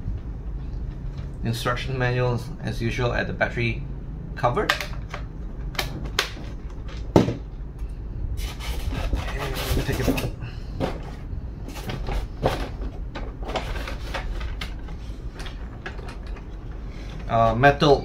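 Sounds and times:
plastic scraping against foam: 0:08.4 - 0:10.4.

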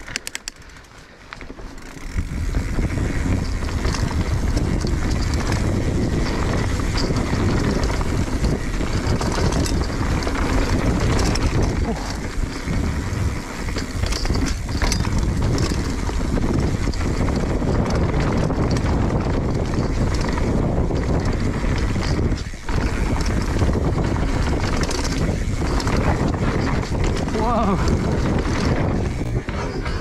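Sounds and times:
bike rattling: 0:00.0 - 0:30.0
tyres on dirt: 0:00.0 - 0:30.0
wind buffeting microphone: 0:01.8 - 0:30.0.

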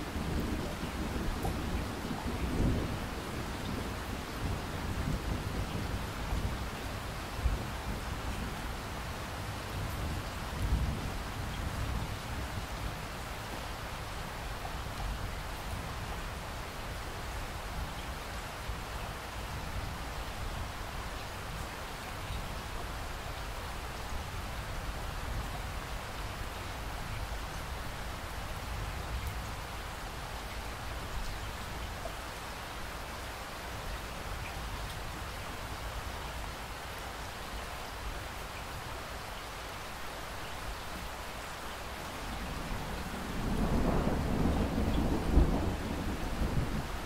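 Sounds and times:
steady rain: 0:00.0 - 0:47.0
thunder rumbling: 0:42.5 - 0:47.0.

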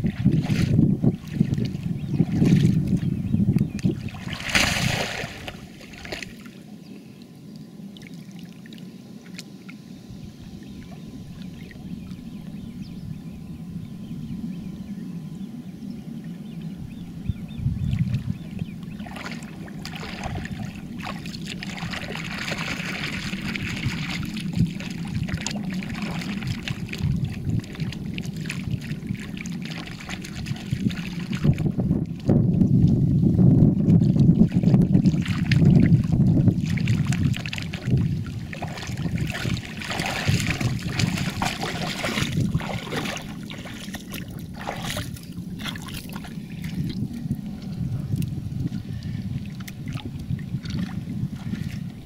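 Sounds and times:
muddy water splashing: 0:00.0 - 0:06.6, 0:17.9 - 0:33.1, 0:33.7 - 0:52.0
steady low rumble: 0:00.0 - 0:52.0.

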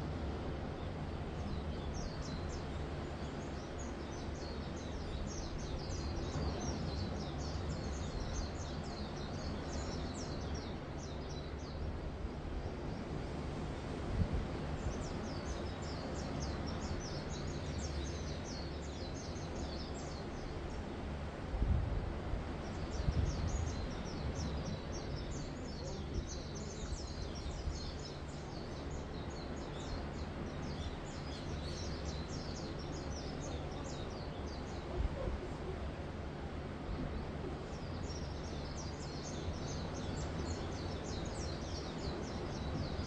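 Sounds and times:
gentle surf on sand: 0:00.0 - 0:43.0
small birds chirping: 0:22.6 - 0:36.0, 0:36.8 - 0:43.0.

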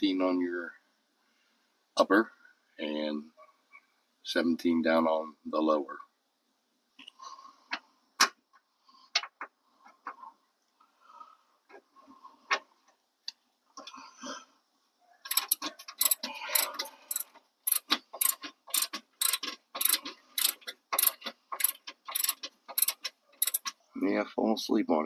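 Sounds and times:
ratchet wrench clicking: 0:15.3 - 0:23.7.

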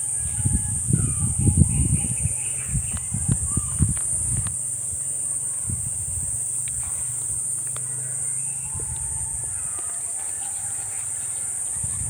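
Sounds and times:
microphone handling rumble: 0:00.3 - 0:04.6
rooster crowing: 0:08.0 - 0:11.9.

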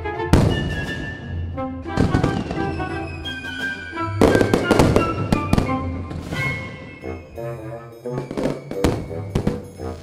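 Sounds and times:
background music: 0:00.0 - 0:10.0
firework bangs crackling: 0:02.0 - 0:07.1, 0:08.2 - 0:10.0.

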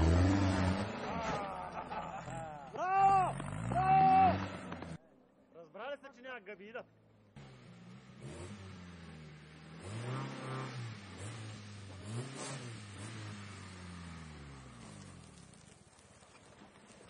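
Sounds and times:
off-road vehicle engine revving: 0:00.0 - 0:05.0, 0:07.3 - 0:15.5.

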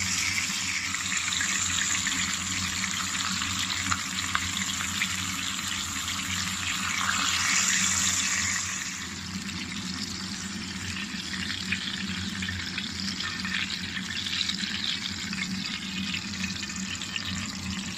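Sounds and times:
fish frying in hot oil: 0:00.0 - 0:17.9
oil crackling and popping: 0:00.0 - 0:17.9.

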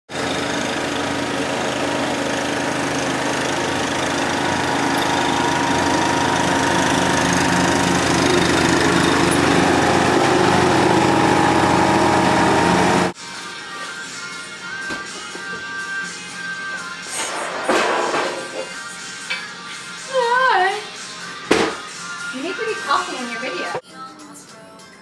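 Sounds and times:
riding lawn tractor engine running: 0:00.1 - 0:13.2.

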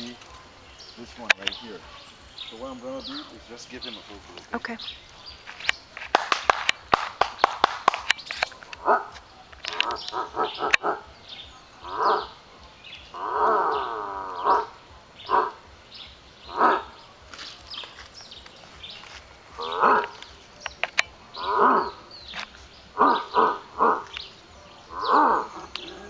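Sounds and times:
monkey roaring: 0:08.7 - 0:11.2, 0:11.8 - 0:12.4, 0:13.1 - 0:15.7, 0:16.4 - 0:17.1, 0:19.6 - 0:20.3, 0:21.3 - 0:22.1, 0:22.9 - 0:24.2, 0:24.8 - 0:26.0.

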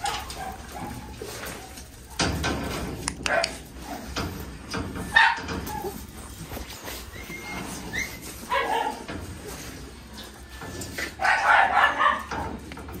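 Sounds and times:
dog barking: 0:00.0 - 0:01.2, 0:03.3 - 0:03.6, 0:05.1 - 0:05.5, 0:08.5 - 0:09.0, 0:11.2 - 0:12.5
dog whining: 0:07.0 - 0:08.9.

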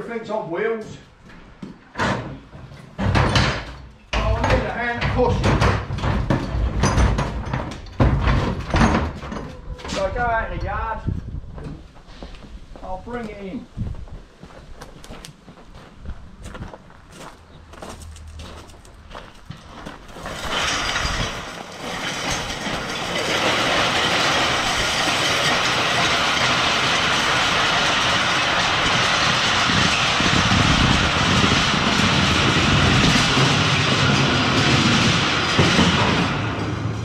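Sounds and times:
iron wheels grinding over gravel: 0:03.5 - 0:09.2, 0:16.5 - 0:37.0
deep rumble: 0:16.0 - 0:37.0
metal grating rattling: 0:18.2 - 0:37.0.

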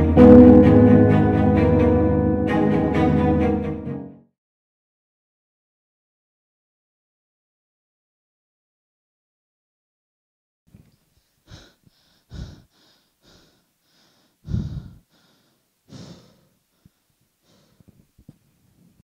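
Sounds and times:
boy breathing hard and gasping: 0:11.2 - 0:18.1.

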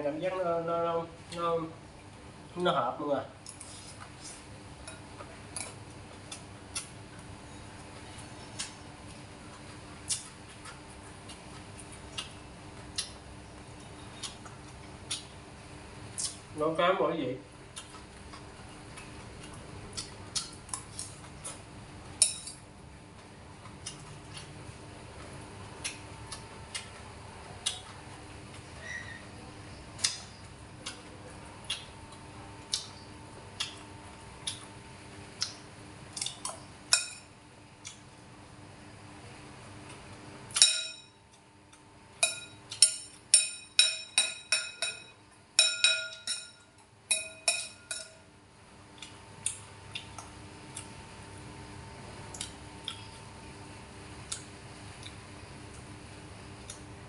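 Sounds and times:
metal spoon clinking on bowl: 0:36.9 - 0:37.3, 0:40.6 - 0:41.2, 0:42.2 - 0:48.2.

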